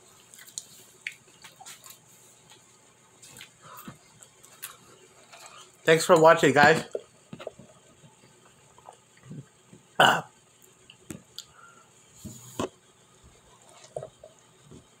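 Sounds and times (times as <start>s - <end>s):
mouth and handling noises: 0.2s - 9.5s
man burping: 10.0s - 10.3s.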